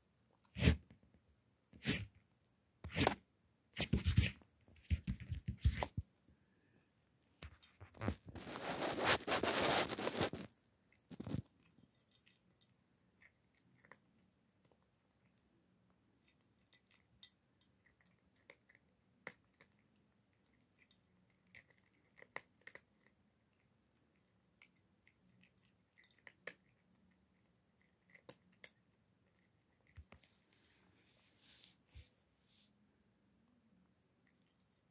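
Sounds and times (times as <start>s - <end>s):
cat crunching kibble: 7.7s - 12.3s, 13.0s - 15.4s, 16.3s - 30.7s.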